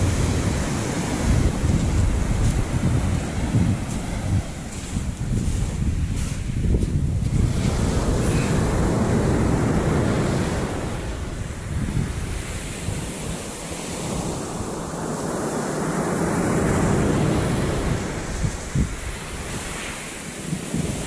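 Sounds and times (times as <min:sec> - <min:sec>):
waves: 0:00.0 - 0:21.0
wind buffeting microphone: 0:00.0 - 0:21.0.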